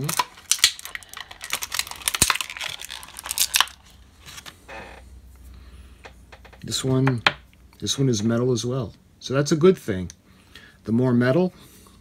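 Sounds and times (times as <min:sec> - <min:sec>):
plastic blister tray crackling: 0:00.0 - 0:04.6.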